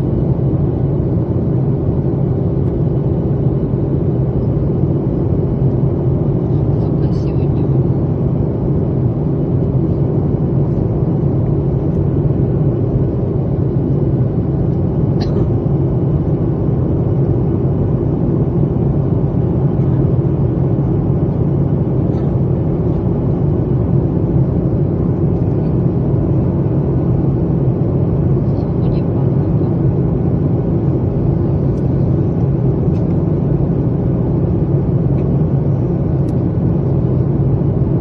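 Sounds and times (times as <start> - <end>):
jet cabin engine rumble: 0.0 - 38.0.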